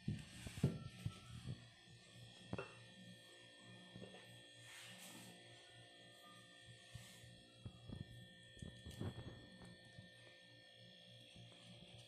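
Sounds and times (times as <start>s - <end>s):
faint background music: 0.0s - 12.0s.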